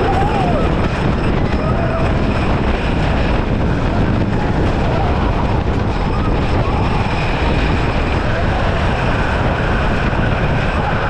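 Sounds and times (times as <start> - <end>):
riders shouting: 0.0 - 0.9
roller coaster wheels rumbling on wood: 0.0 - 11.0
wind rushing on microphone: 0.0 - 11.0.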